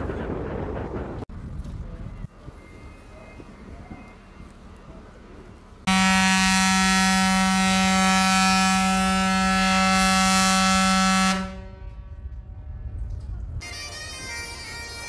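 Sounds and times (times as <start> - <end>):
ship's horn blast: 5.9 - 12.4.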